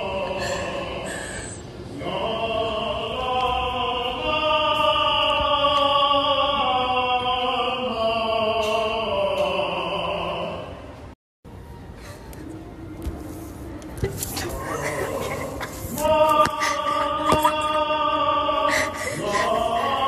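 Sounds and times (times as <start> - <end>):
men singing opera: 2.0 - 10.7, 14.5 - 20.0.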